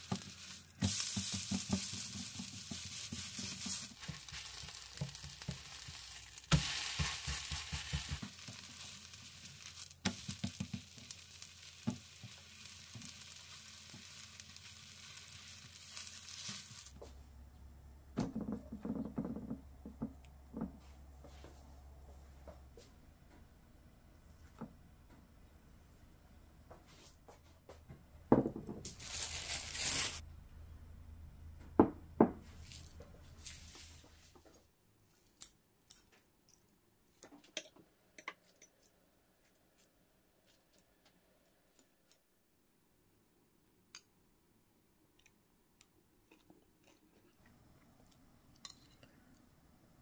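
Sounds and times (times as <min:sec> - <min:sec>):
rustling hiss: 0:00.0 - 0:17.0
bowls knocking on wooden table: 0:18.2 - 0:20.8.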